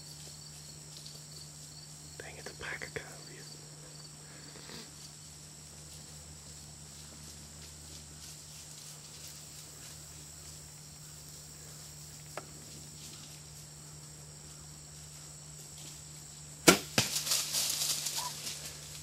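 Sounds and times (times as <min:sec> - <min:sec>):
animals running through dry leaves: 0:04.9 - 0:19.0
bow shots snapping: 0:16.6 - 0:17.6.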